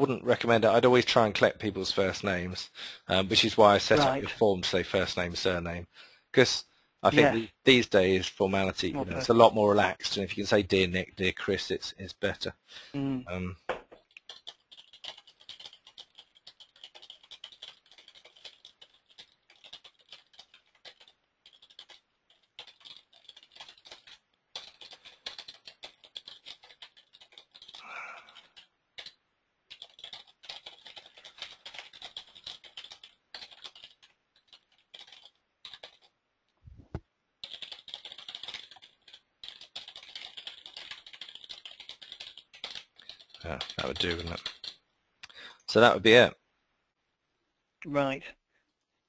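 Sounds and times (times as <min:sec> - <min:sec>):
keyboard typing: 0:14.0 - 0:36.2, 0:36.9 - 0:45.4.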